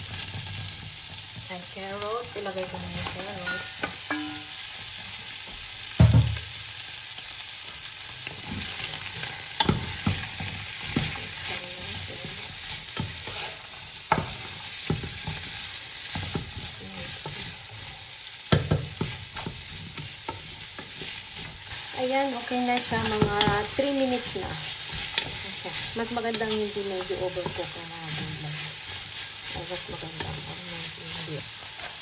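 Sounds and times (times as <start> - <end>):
food sizzling in a pot: 0.0 - 32.0
wooden spatula scraping a pot: 8.2 - 32.0.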